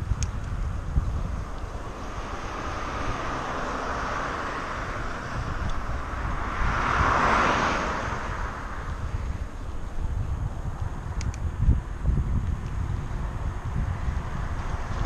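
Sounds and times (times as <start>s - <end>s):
wind rumble on microphone: 0.0s - 15.0s
car driving past: 1.4s - 9.7s.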